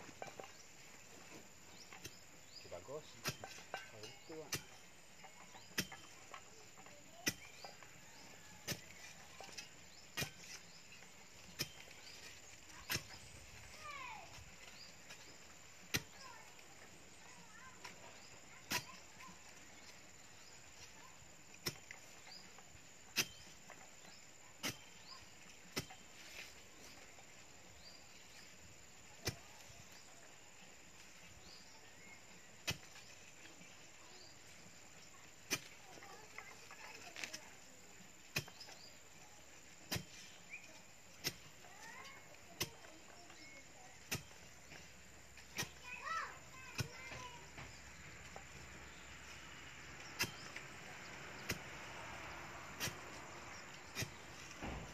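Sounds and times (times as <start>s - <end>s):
iron bar knocking into soil: 3.2s - 4.8s, 5.5s - 6.2s, 39.9s - 40.2s, 43.4s - 44.4s.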